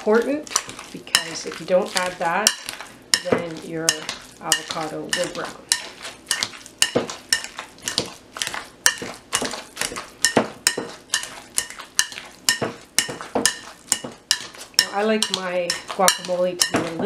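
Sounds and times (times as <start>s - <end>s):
masher knocking glass bowl: 12.5s - 17.0s.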